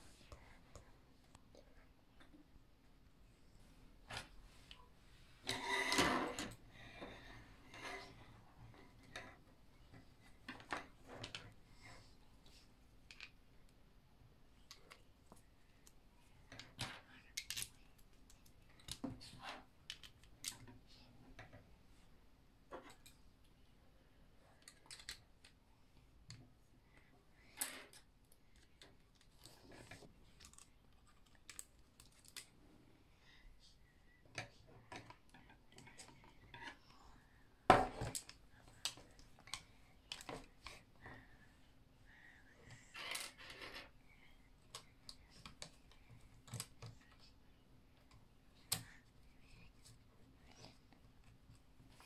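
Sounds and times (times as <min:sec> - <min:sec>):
plastic parts clicking and clattering: 0:16.5 - 0:17.8, 0:18.4 - 0:20.8, 0:24.6 - 0:25.6.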